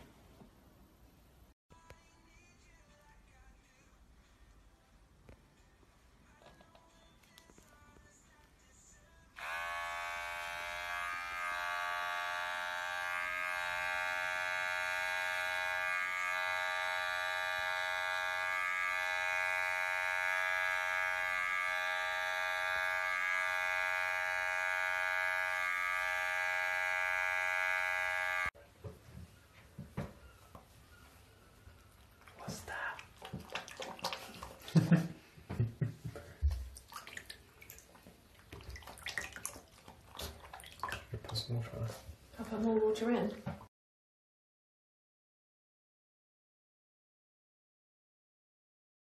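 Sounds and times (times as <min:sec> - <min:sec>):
electric hair clipper buzzing: 0:09.4 - 0:28.6.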